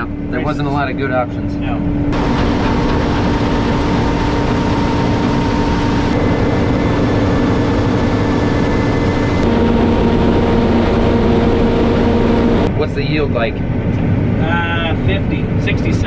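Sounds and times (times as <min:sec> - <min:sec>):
combine harvester machinery humming: 0:02.2 - 0:12.7.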